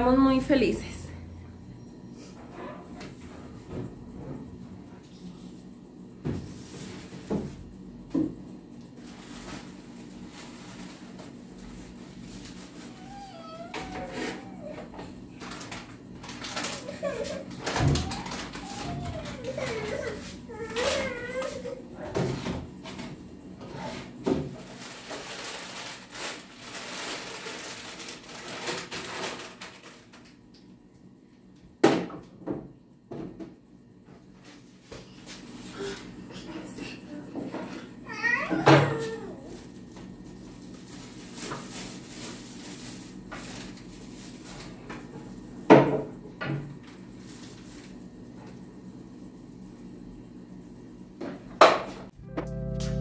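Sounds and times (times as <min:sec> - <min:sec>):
packets rustling: 0:15.4 - 0:21.0, 0:24.6 - 0:30.2.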